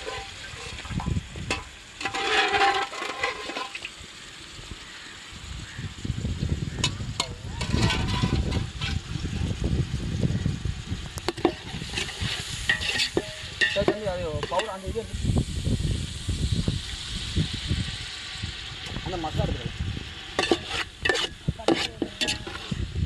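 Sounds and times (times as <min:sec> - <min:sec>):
metal spoon scraping pot: 0:00.0 - 0:03.9, 0:06.8 - 0:09.1, 0:11.3 - 0:14.8, 0:20.3 - 0:22.9
gravy pouring with hiss: 0:00.0 - 0:23.0.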